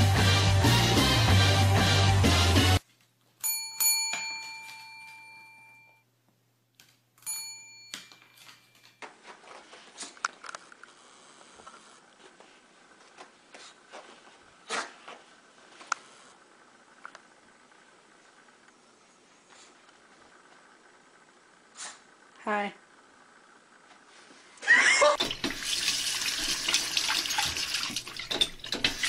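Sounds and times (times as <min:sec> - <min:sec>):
desk call bell dings: 0:03.4 - 0:06.0, 0:07.2 - 0:09.0.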